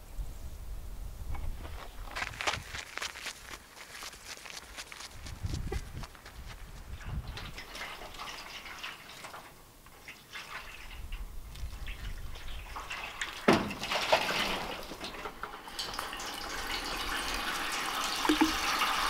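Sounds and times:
water pouring into downspout: 7.2 - 19.0
water dripping into metal gutter: 7.3 - 19.0
water splashing onto metal roof: 7.4 - 19.0.

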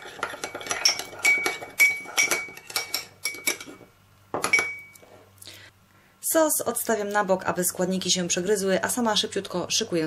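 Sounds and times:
metal spoon clinking in ceramic cup: 0.0 - 3.8, 4.4 - 5.0.

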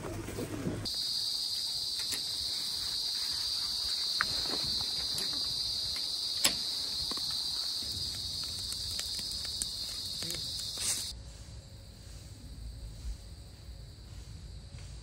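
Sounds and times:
insects droning: 0.8 - 15.0.

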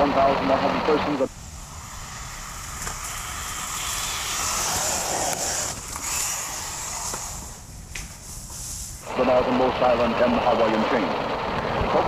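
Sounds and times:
rc truck tyres and drivetrain hiss: 0.1 - 12.0.

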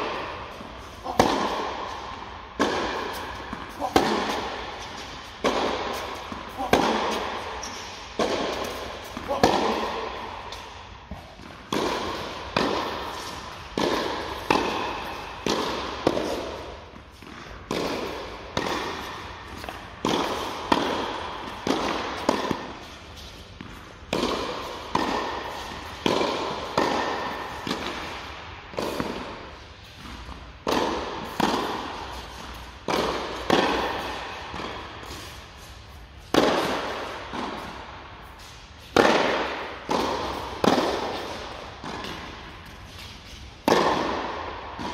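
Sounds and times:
tennis ball bouncing: 0.0 - 44.9
tennis racket hitting ball: 0.0 - 44.9.

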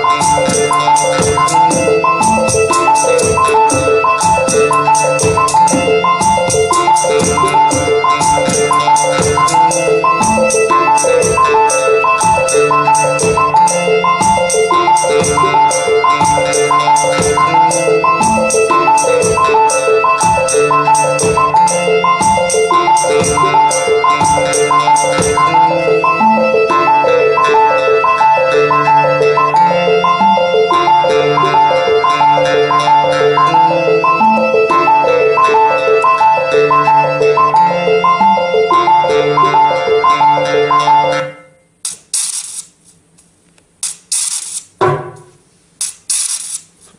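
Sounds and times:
ticking percussion: 0.0 - 28.3
synthesizer note sequence: 0.0 - 41.4.

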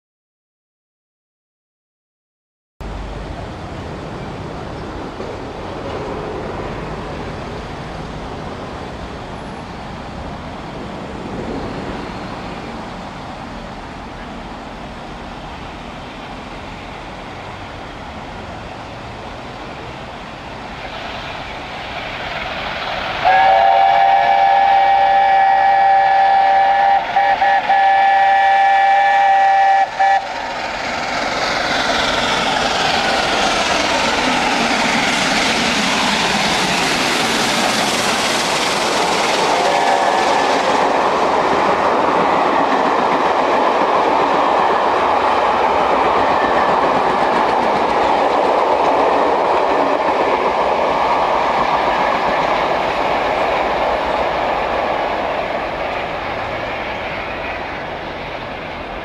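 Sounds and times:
steady rushing noise: 2.8 - 25.0, 29.8 - 59.0
approaching train noise: 2.8 - 59.0
steam locomotive chime whistle: 23.2 - 30.4, 39.4 - 40.7.

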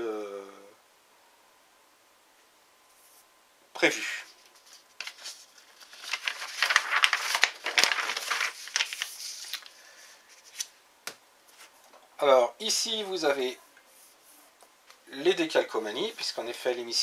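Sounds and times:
paper rustling and crinkling: 4.2 - 10.8
paper clicks: 4.4 - 9.8.

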